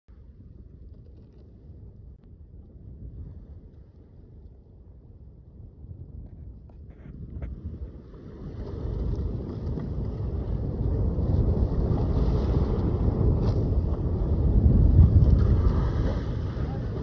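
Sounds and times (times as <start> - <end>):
wind buffeting microphone: 0.1 - 17.0
water rushing past boat: 7.8 - 17.0.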